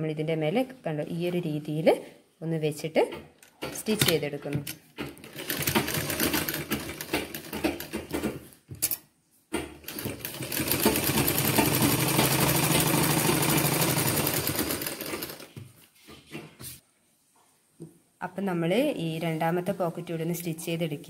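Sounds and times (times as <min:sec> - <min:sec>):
sewing machine stitching: 0:03.6 - 0:08.5, 0:09.6 - 0:15.6.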